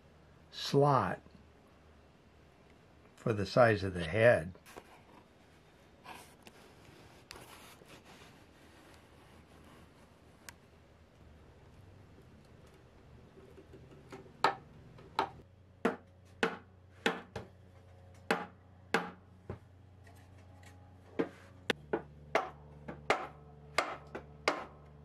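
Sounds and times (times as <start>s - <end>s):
hammer knocking wood: 15.2s - 17.5s, 18.3s - 19.2s, 21.9s - 24.8s.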